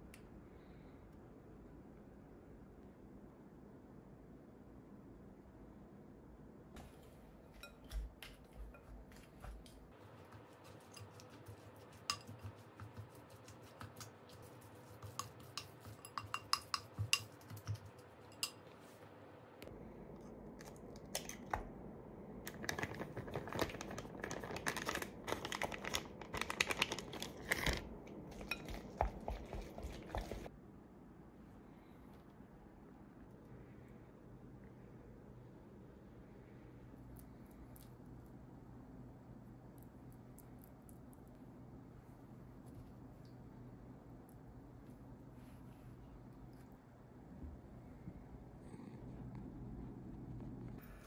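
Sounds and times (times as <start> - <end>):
wet mixing: 7.6 - 19.0, 22.5 - 30.5
spatula scraping glass bowl: 10.3 - 18.7.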